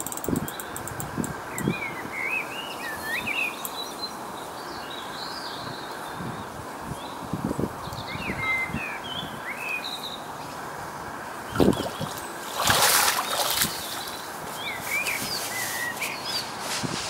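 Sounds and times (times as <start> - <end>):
small birds chirping: 11.4 - 16.7
boots splashing through water: 11.6 - 14.1.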